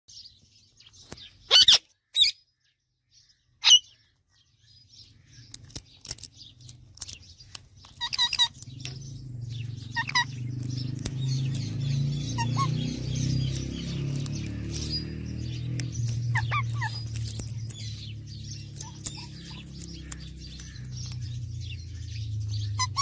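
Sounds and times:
parakeet trilled calls: 0:01.4 - 0:02.4, 0:03.6 - 0:04.0, 0:07.8 - 0:23.0
parakeet screeching: 0:01.5 - 0:02.4, 0:03.6 - 0:03.9, 0:07.8 - 0:09.0, 0:09.7 - 0:21.2, 0:22.6 - 0:23.0
parakeet chirps and clicks: 0:04.8 - 0:23.0.

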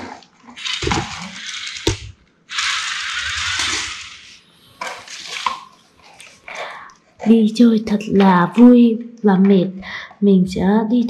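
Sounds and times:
toy wheels rolling rattle: 0:02.5 - 0:04.4.

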